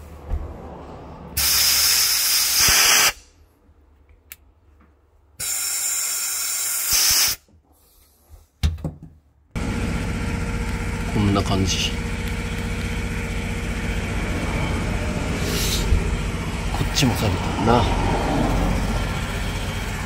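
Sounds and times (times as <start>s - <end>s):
sandblaster hissing blasts: 1.4s - 3.2s, 5.4s - 7.4s
machine running with low hum: 9.6s - 20.0s.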